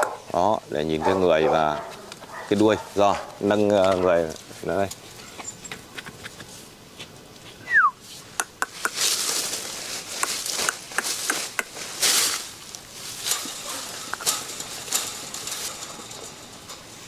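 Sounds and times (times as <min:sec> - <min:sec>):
fur and clothing rustling: 0:09.0 - 0:16.2.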